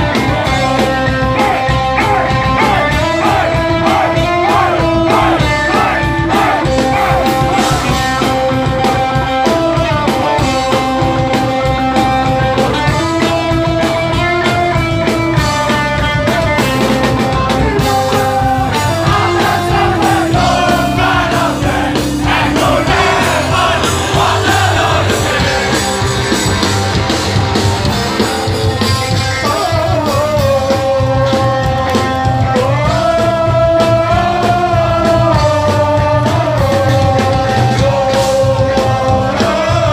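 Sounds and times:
person singing: 0:00.0 - 0:11.3, 0:17.8 - 0:26.0
distorted electric guitars: 0:00.0 - 0:39.9
pounding drum kit: 0:00.0 - 0:39.9.

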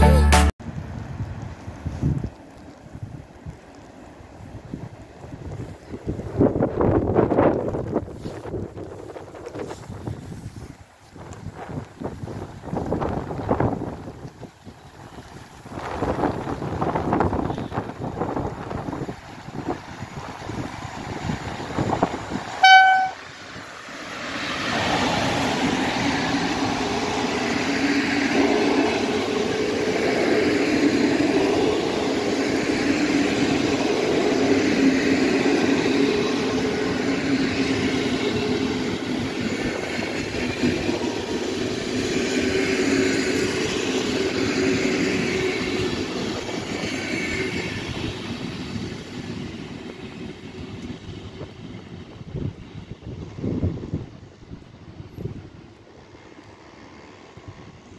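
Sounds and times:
train wheels rolling on rails: 0:00.8 - 0:57.9
train horn blast: 0:22.6 - 0:23.2.

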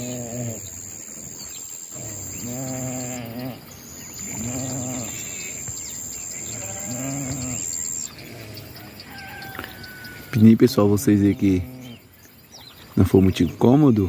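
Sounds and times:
sheep bleating: 0:06.5 - 0:07.7.

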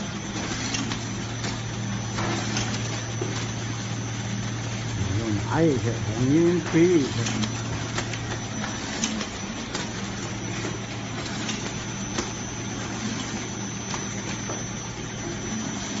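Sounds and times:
machine motor hum: 0:00.0 - 0:16.0.

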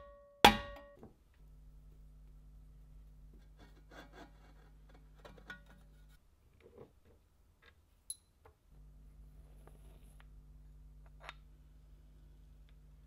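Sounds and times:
low steady hum: 0:00.0 - 0:13.0
metal part tinking on wooden table: 0:08.1 - 0:08.4.

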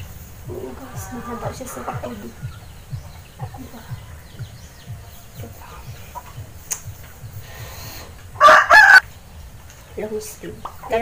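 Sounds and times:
chickens clucking: 0:00.0 - 0:11.0
chicken squawk: 0:00.8 - 0:02.4, 0:08.4 - 0:09.0.

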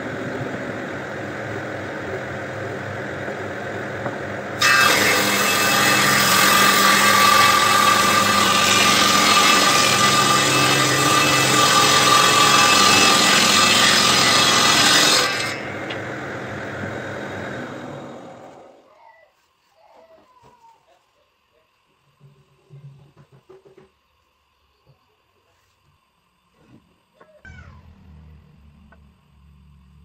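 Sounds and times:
table saw cutting wood: 0:04.6 - 0:18.8.

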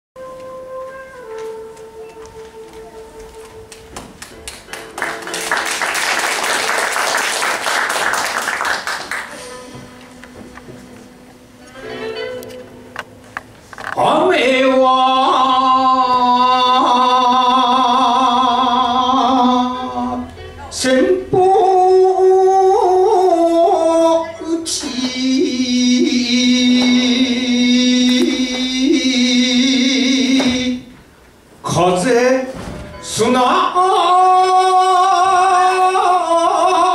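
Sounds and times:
music: 0:00.2 - 0:31.8, 0:32.4 - 0:36.9
audience applause: 0:04.2 - 0:09.5.

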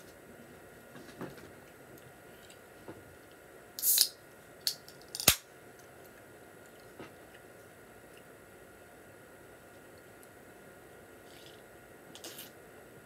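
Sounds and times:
can pull tab cracking: 0:03.8 - 0:05.4.

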